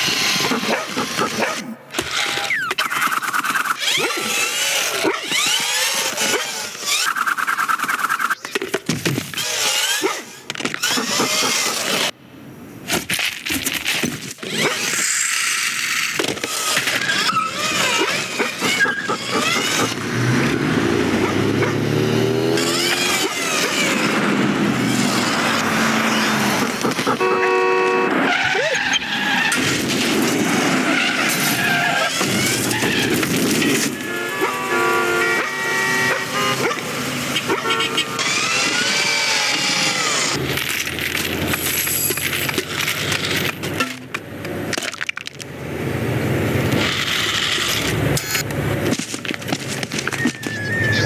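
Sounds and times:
car engines: 0.0 - 51.0
skidding brakes: 14.4 - 40.4, 49.1 - 51.0
tire squeals: 14.6 - 21.8, 22.4 - 29.9, 30.7 - 40.4, 49.9 - 51.0
car horn: 27.0 - 28.6, 33.6 - 38.8.

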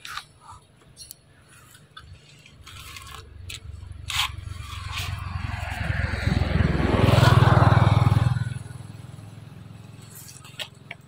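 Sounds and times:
engine rumbling loudly: 3.7 - 11.0.

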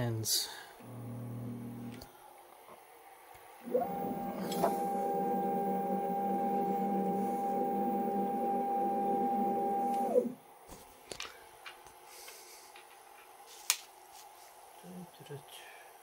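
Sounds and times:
lathe motor whining: 0.8 - 2.0, 3.6 - 10.4.

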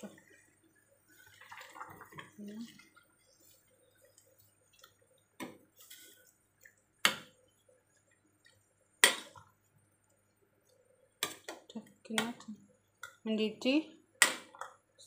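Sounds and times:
broth sloshing: 0.0 - 6.9.

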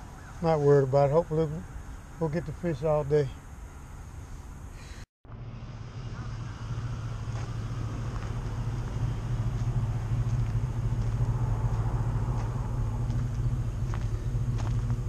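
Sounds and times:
vehicle engine idling: 5.2 - 15.0.

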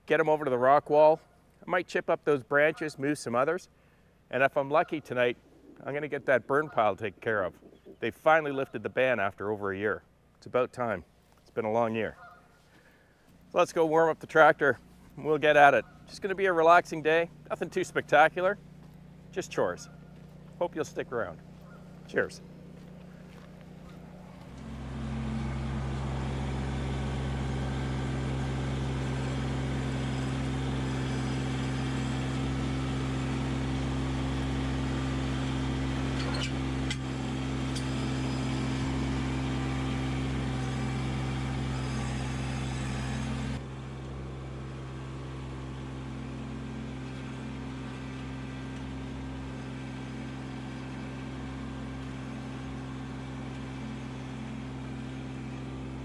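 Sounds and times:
tractor diesel engine running: 12.0 - 56.0.

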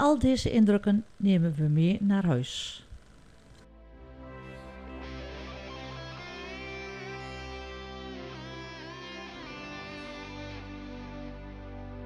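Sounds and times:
sustained instrumental music: 3.6 - 12.0.

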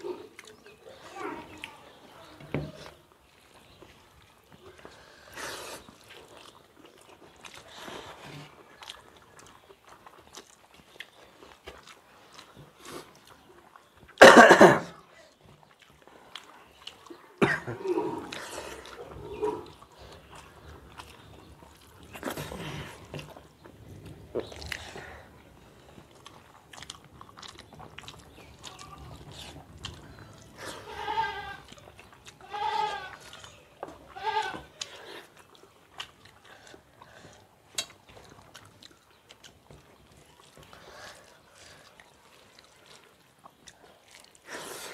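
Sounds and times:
chewing: 0.0 - 14.2, 15.0 - 44.9
goat bleating: 30.8 - 31.7, 32.4 - 33.2, 34.1 - 34.7.

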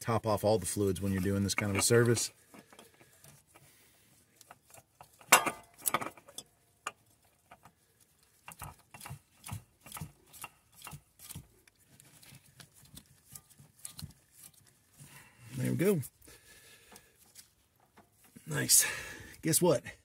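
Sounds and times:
tool clatter: 1.2 - 3.6, 4.4 - 7.7
tools clicking and knocking: 1.6 - 3.6, 4.4 - 7.7, 8.3 - 11.8.

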